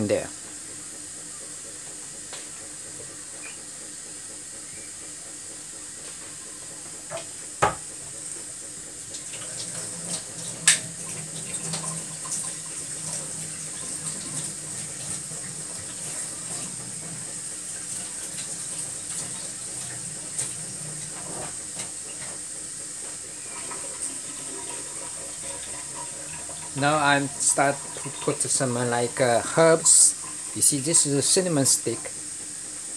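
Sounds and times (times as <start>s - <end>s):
water bubbling in a pot: 23.3s - 32.4s.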